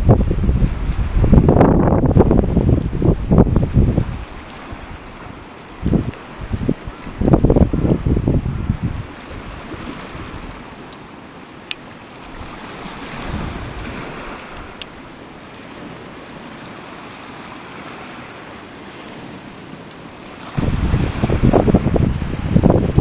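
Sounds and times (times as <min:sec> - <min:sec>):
small waves on pebble shore: 0:08.6 - 0:23.0.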